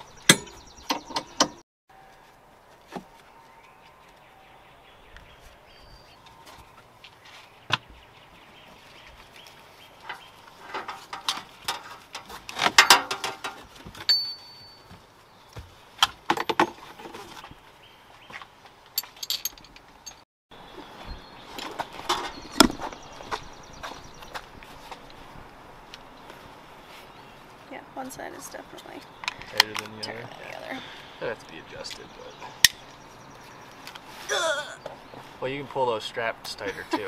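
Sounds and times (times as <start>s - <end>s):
metal buckles clicking and rattling: 18.9s - 20.2s.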